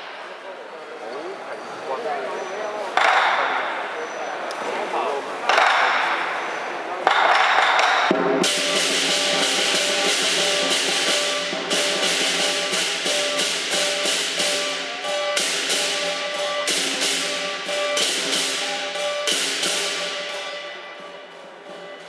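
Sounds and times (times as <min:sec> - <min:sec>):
cymbals crashing: 0:05.5 - 0:22.0
drums and gong: 0:07.1 - 0:22.0.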